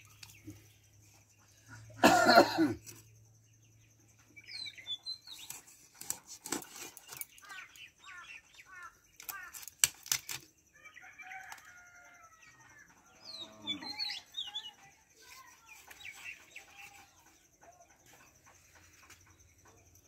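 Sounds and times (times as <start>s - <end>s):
birds chirping: 0.0s - 20.0s
person coughing: 2.0s - 2.8s.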